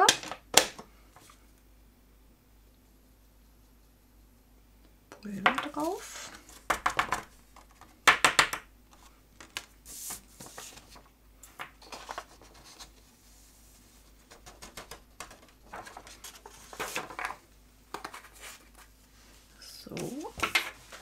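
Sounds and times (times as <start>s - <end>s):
paper rustling: 8.9s - 11.1s, 11.8s - 13.1s, 14.0s - 17.4s, 18.0s - 18.9s
powder sliding hiss: 9.8s - 10.8s.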